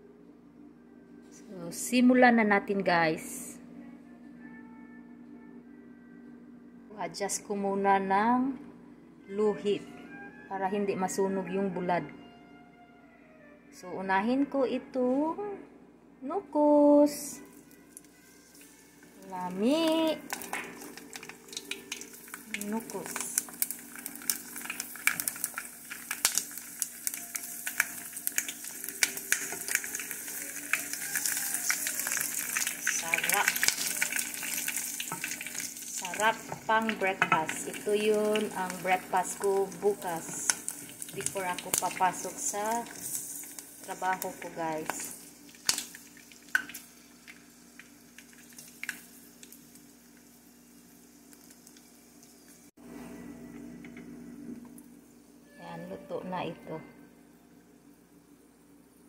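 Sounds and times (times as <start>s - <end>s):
fish sizzling in hot oil: 18.3s - 52.7s
oil popping and crackling: 19.8s - 50.4s.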